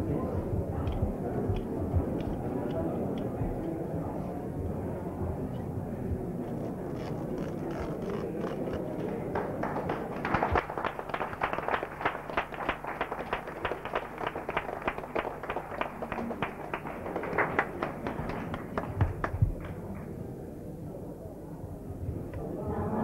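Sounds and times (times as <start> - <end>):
small crowd applauding: 7.7 - 20.2.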